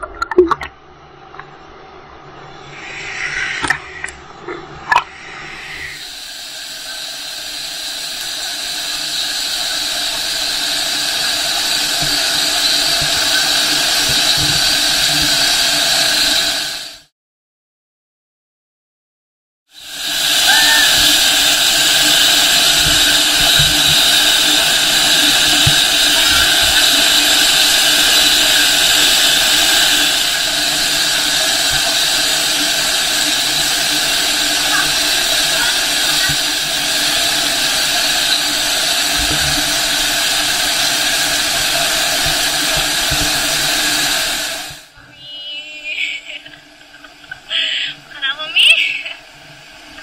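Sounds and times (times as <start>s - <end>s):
waterfall pouring onto rocks: 6.4s - 16.8s, 19.8s - 44.9s.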